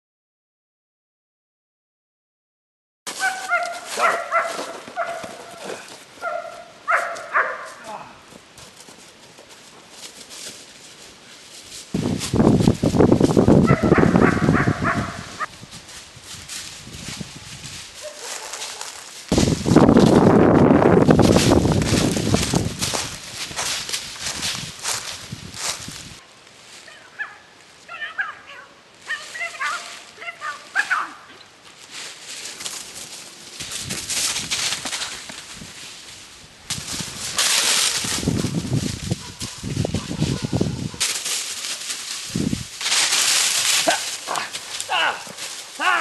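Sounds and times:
footsteps crunching through dry leaves: 3.1 - 28.1, 28.9 - 31.0, 31.6 - 46.0
dog's high-pitched cries: 3.2 - 5.4.

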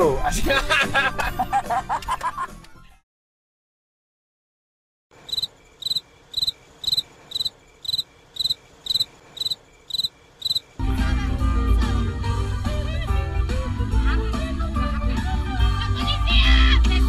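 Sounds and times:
cricket chirping: 5.2 - 10.8.

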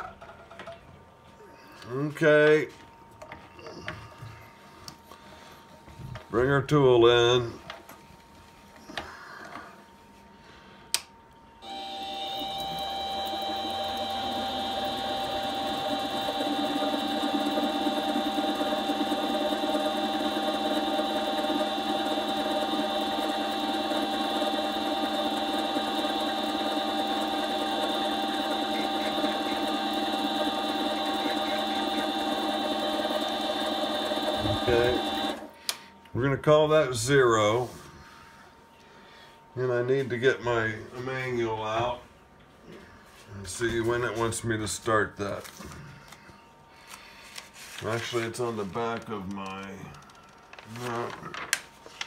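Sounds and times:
lathe motor whining: 11.6 - 35.6.

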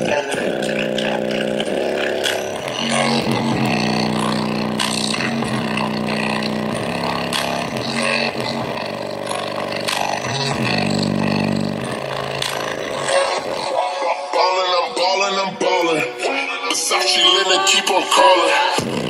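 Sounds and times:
bass-boosted electronic music: 0.0 - 19.0.

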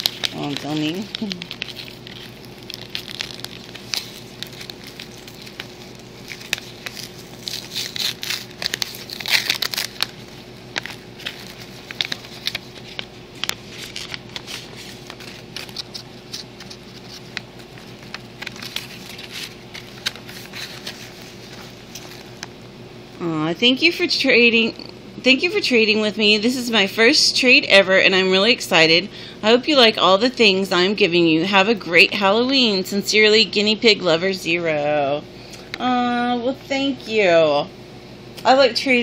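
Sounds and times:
paper envelope opening: 0.0 - 22.5
plastic packaging crinkling: 0.0 - 22.7.

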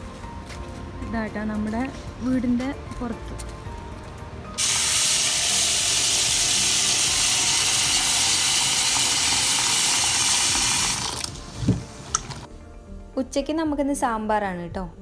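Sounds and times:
tap water pouring into pot: 4.6 - 11.4.

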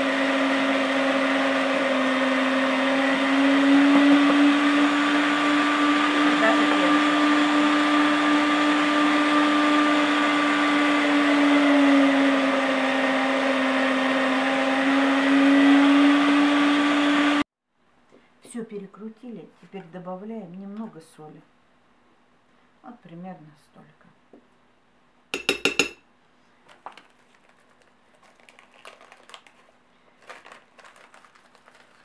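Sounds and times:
electric meat grinder running: 0.0 - 17.4.

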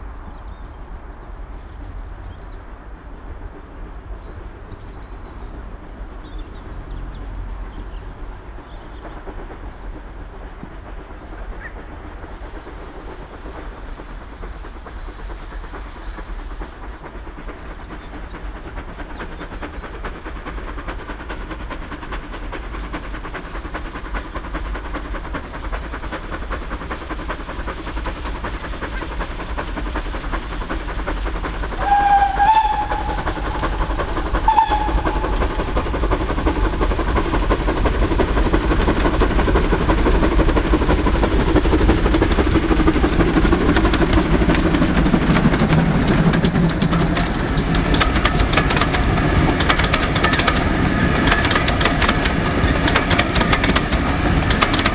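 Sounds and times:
steam locomotive exhaust: 0.0 - 54.9
steam whistle blasts: 31.8 - 33.3, 34.4 - 35.3.

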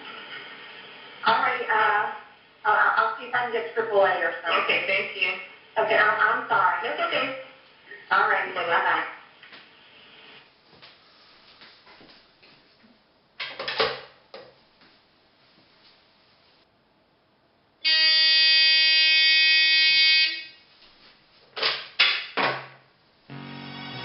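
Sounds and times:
phone ringing electronic buzz: 17.9 - 20.6, 23.3 - 24.0.

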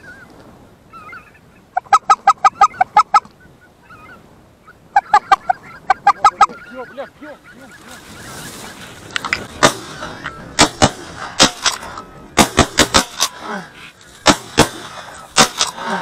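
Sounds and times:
shotgun shots: 9.6 - 13.4, 14.2 - 16.0.

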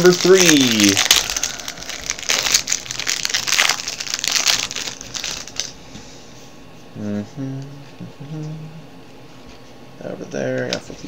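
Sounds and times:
plastic wrapper crinkling: 0.0 - 5.8.

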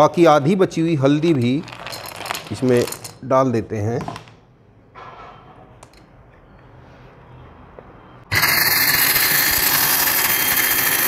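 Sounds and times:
mixer grinder grinding: 8.3 - 11.0.

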